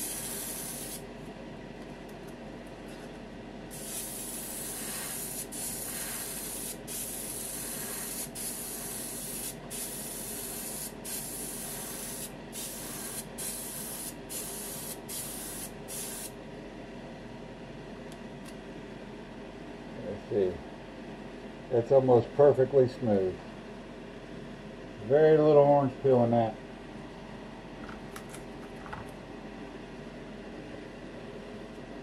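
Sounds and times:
airbrush spraying hiss: 0.0 - 1.0, 3.7 - 16.3.

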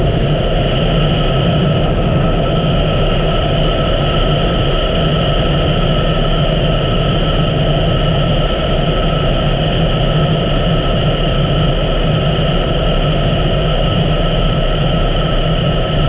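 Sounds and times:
rush of riding wind: 0.0 - 16.0.

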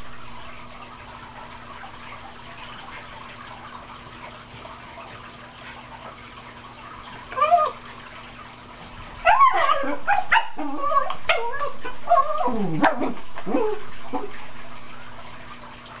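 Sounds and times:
dog barking and yelping: 9.2 - 14.4.

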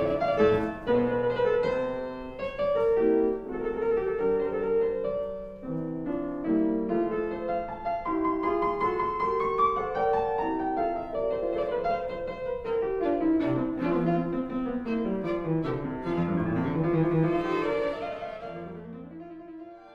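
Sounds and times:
piano: 0.0 - 19.9
bowed strings: 12.6 - 19.9.

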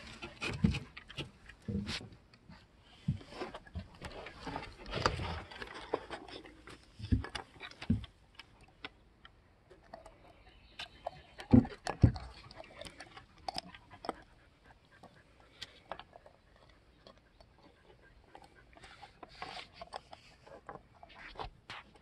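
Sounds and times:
dog gnawing on chew: 3.5 - 8.9, 9.7 - 22.0
teeth clicking: 5.0 - 21.1.

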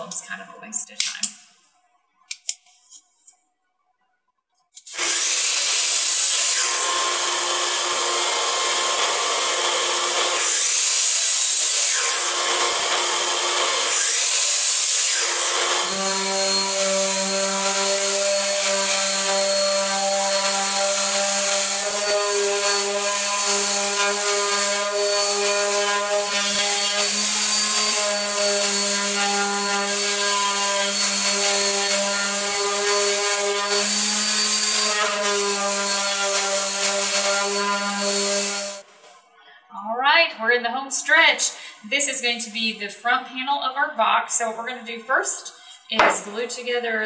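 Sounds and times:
orbital sander sanding wood: 4.8 - 38.9, 45.6 - 46.8
miter saw cutting wood: 4.8 - 39.1.

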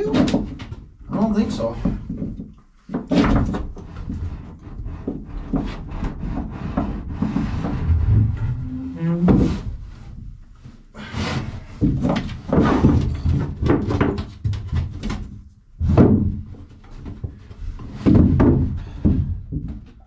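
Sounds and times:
wood knocks and thunks: 0.0 - 1.2, 1.8 - 9.7, 11.7 - 20.0
wood scraping and rubbing: 3.0 - 10.2.

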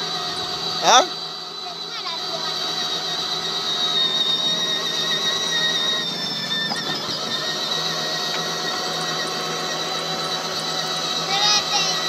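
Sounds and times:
electric motor and gearbox whining: 0.0 - 12.0.

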